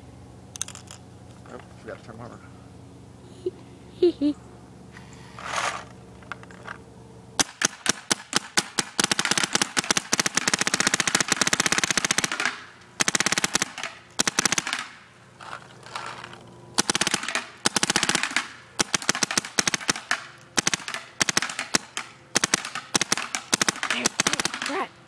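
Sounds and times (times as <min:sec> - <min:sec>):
paintball marker rapid shots: 0:07.4 - 0:15.0, 0:16.8 - 0:24.9.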